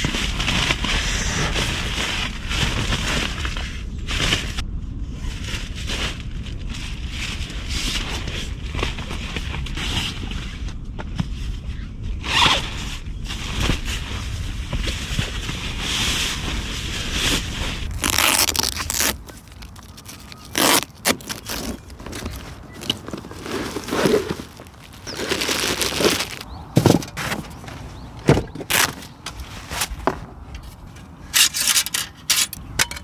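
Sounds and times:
low rumble: 0.0s - 20.6s
plastic bag rustling: 13.3s - 31.2s
zippers rasping: 17.9s - 26.4s.

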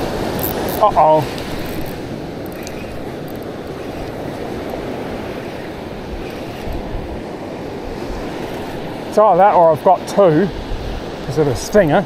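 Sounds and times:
surf washing onto beach: 0.0s - 12.0s
wind rumble on microphone: 0.0s - 12.0s.

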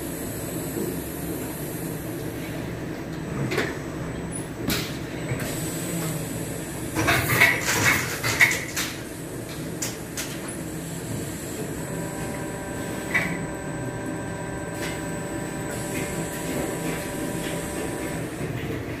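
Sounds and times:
machine hum with steady tones: 0.0s - 19.0s.

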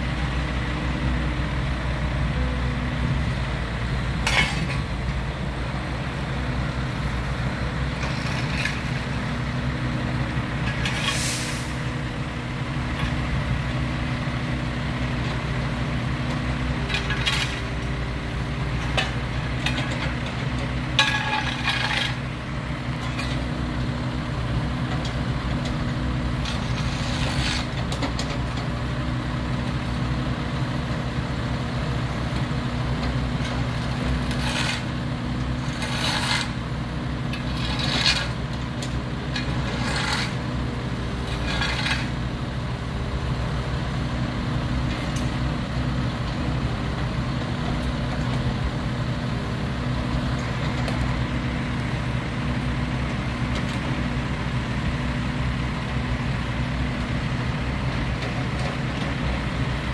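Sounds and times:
heavy engine running: 0.0s - 59.9s
short hisses: 11.0s - 11.8s.

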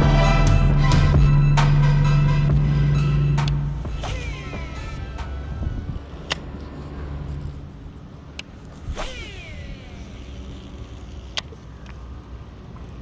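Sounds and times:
low rumble: 0.0s - 8.0s
reel spool whining: 3.9s - 13.0s
fishing reel clicks: 8.4s - 12.0s.

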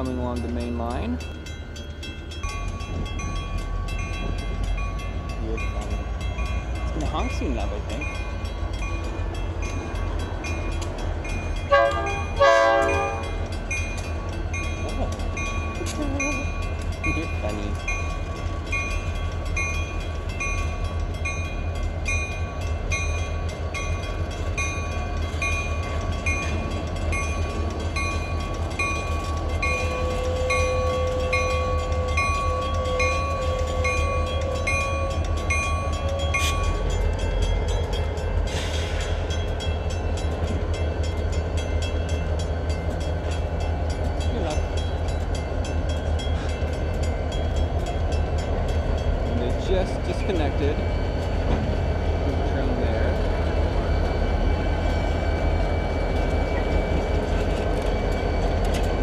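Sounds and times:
crossing bell dinging: 0.0s - 59.0s
diesel locomotive engines droning: 0.0s - 59.0s.

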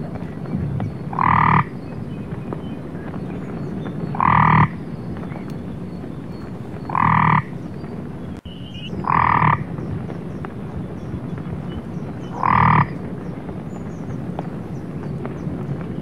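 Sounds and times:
frog croaking: 0.4s - 1.9s, 4.0s - 10.0s, 11.5s - 13.0s.

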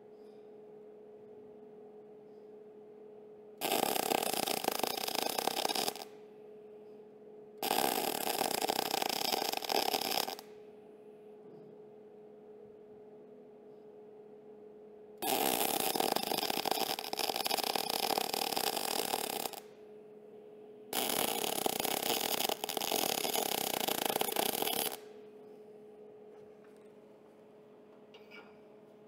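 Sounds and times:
faint steady hum: 0.0s - 29.0s
welding arc crackling: 3.6s - 6.1s, 7.6s - 10.4s, 15.2s - 19.6s, 21.0s - 25.1s.

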